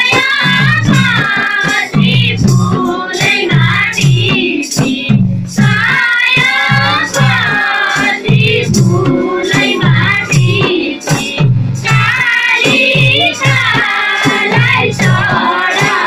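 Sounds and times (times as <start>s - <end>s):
hand drum rhythm: 0.0s - 16.0s
high voice singing folk melody: 5.8s - 11.3s.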